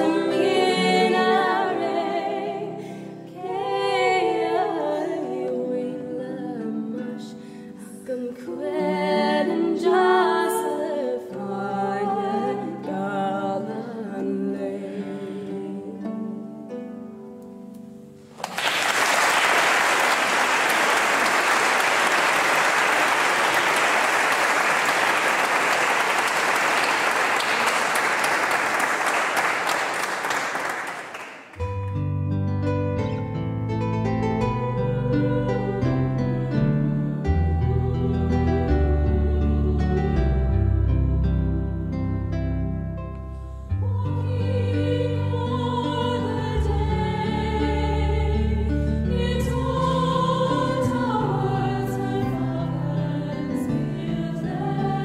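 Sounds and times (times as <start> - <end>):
voices singing: 0.0 - 2.8, 3.4 - 7.3, 37.4 - 41.5, 43.8 - 55.0
audience applause: 18.4 - 31.6.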